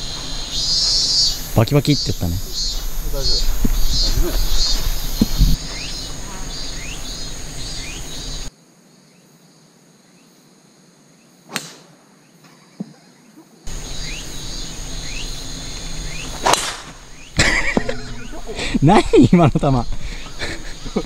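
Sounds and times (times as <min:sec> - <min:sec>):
insects chirping: 0:00.0 - 0:21.0
golf club striking ball: 0:16.1 - 0:18.2.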